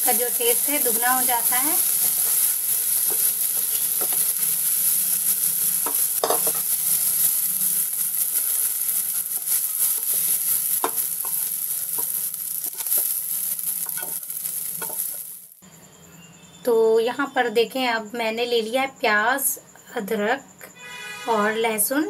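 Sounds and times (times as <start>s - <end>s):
mushrooms sizzling in butter: 0.0s - 15.6s
spatula tapping and scraping pan: 1.9s - 4.5s, 5.8s - 6.8s, 9.3s - 15.2s.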